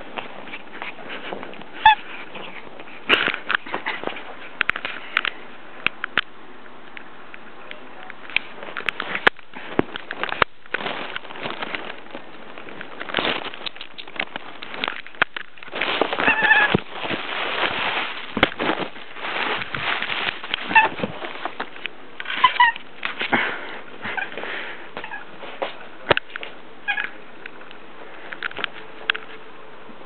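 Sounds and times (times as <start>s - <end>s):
cat scuffling against microphone: 0.0s - 5.3s, 8.3s - 27.1s
cat chirping: 1.8s - 2.5s, 16.2s - 16.8s, 20.7s - 21.0s, 22.4s - 22.8s, 26.8s - 27.2s.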